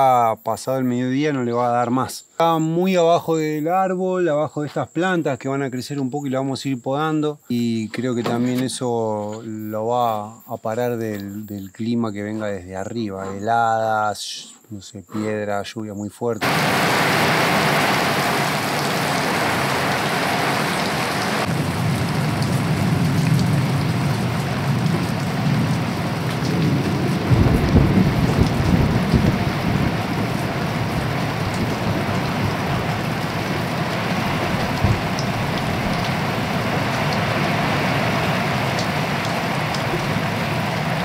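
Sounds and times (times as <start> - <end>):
steady rain falling: 16.4 - 41.0
low roll of thunder: 21.4 - 41.0.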